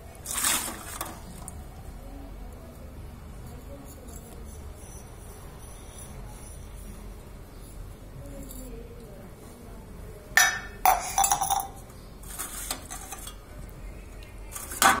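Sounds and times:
steel utensils clinking: 0:10.4 - 0:13.4.

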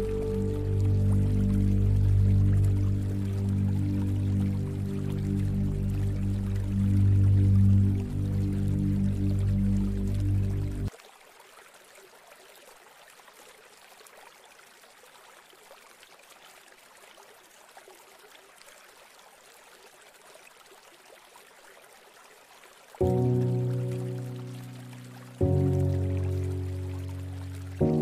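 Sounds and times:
background music: 0:00.0 - 0:10.9, 0:23.0 - 0:28.0
rushing water: 0:00.0 - 0:28.0.

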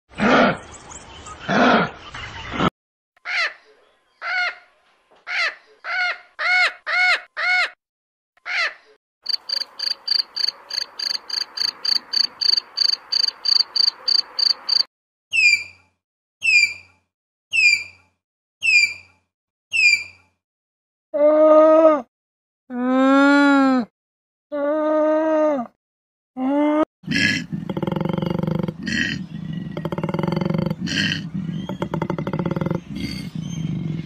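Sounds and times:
macaw squawking: 0:05.3 - 0:07.8, 0:08.4 - 0:14.8.

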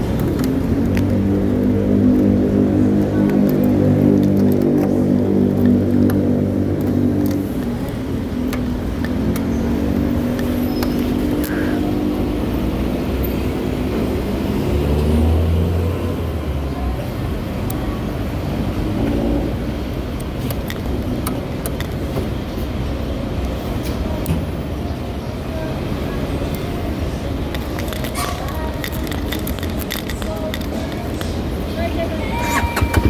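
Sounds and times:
road noise: 0:00.0 - 0:33.0
motorcycle engine running: 0:32.3 - 0:33.0.

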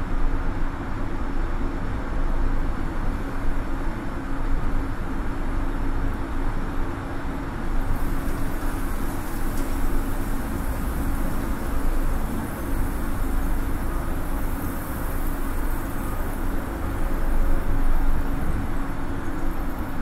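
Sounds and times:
steady hum: 0:02.0 - 0:20.0
deep continuous industrial rumble: 0:02.3 - 0:20.0
bright hiss: 0:07.7 - 0:20.0.

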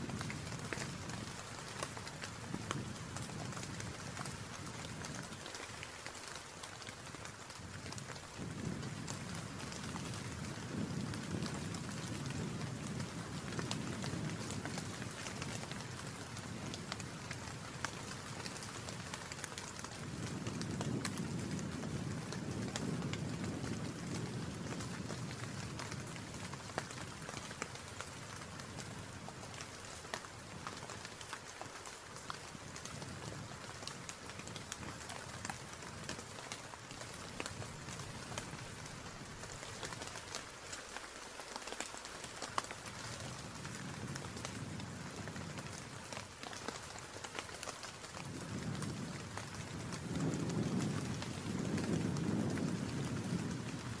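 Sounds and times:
steady rain falling: 0:00.0 - 0:54.0
low wind rumble: 0:07.6 - 0:17.8, 0:19.9 - 0:27.3, 0:48.2 - 0:54.0.

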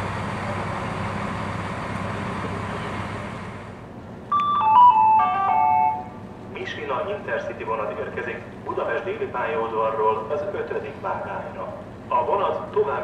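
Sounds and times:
electric locomotive rumble and hum: 0:00.0 - 0:13.0
public-address chime: 0:04.3 - 0:06.2.

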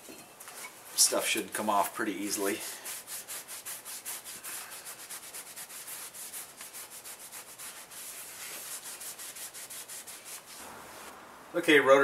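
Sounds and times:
rag scrubbing metal: 0:02.3 - 0:10.6.

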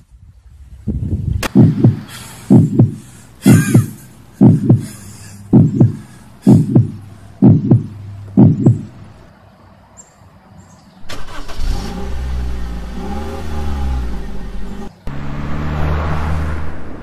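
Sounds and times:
heartbeat double thump: 0:00.9 - 0:09.0.

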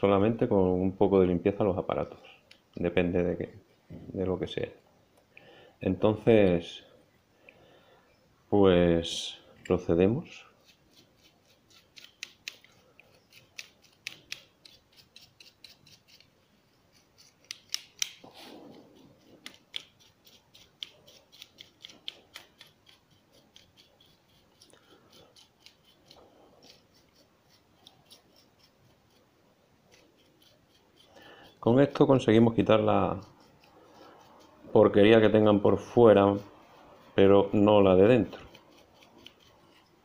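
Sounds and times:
brush bristles sweeping circuit board: 0:10.3 - 0:40.0.

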